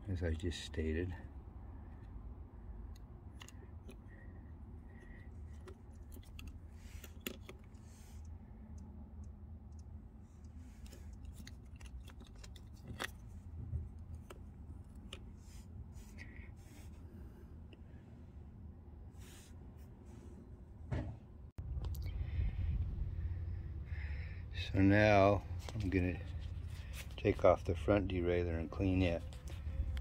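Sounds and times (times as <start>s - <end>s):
low hum: 1.2s - 30.0s
small metallic clicks: 2.9s - 4.3s, 4.9s - 13.4s.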